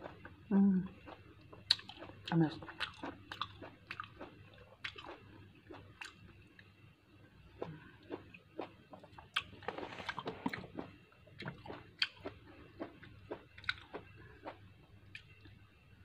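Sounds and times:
person chewing: 1.0s - 2.2s, 2.8s - 6.2s, 7.6s - 15.5s.

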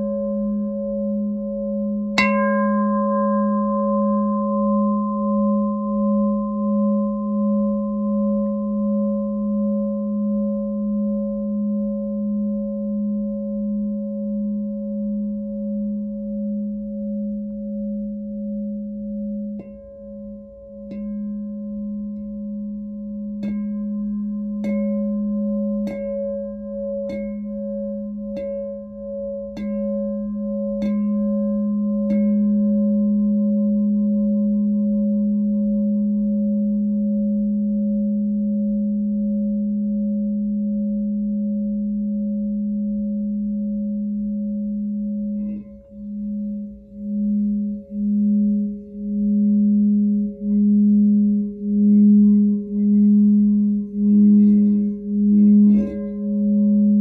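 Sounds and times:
singing bowl ringing: 0.0s - 57.0s
singing bowl tapped: 25.8s - 27.7s, 29.5s - 30.1s, 32.0s - 32.6s.

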